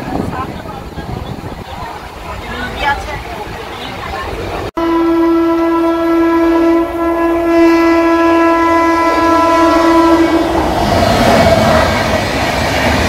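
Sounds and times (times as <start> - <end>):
locomotive horn blast: 4.8 - 10.7.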